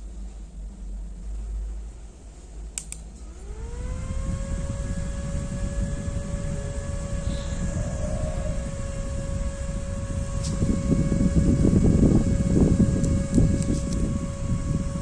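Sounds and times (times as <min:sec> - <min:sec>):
fan motor whine: 0:00.0 - 0:15.0
fan click: 0:02.4 - 0:14.3.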